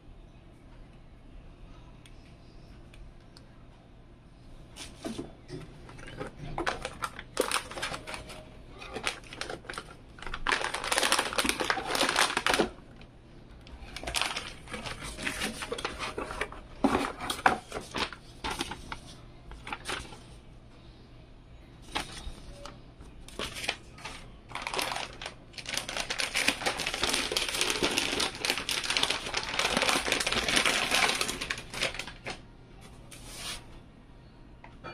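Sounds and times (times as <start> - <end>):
plastic bag crinkling: 5.9 - 13.1, 13.7 - 20.4, 21.8 - 32.4.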